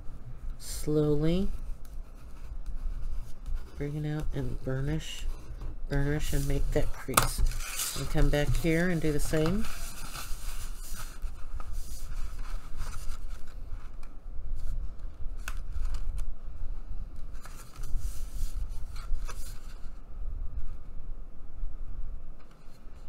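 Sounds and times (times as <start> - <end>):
paper sliding and rustling: 5.3 - 14.7, 17.3 - 20.0
stiff paper crackling: 6.0 - 14.7.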